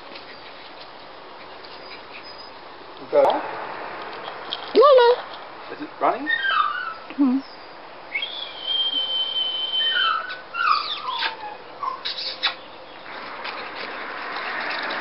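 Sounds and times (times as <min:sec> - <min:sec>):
hiss of wind or movement: 0:00.0 - 0:06.2
puppies whining and yelping: 0:06.2 - 0:12.7.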